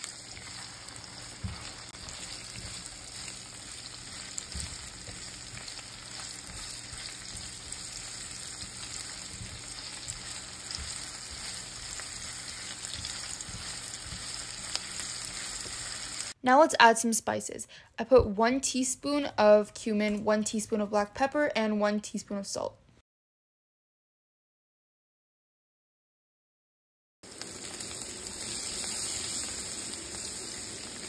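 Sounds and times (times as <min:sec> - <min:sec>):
spatula stirring and knocking pan: 0:00.0 - 0:16.1
sausage and onion sizzling in pan: 0:00.0 - 0:16.4, 0:27.2 - 0:31.0.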